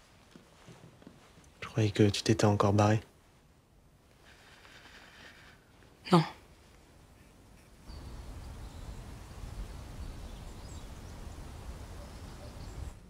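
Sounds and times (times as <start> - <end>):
faint bird chirps: 7.2 - 13.0.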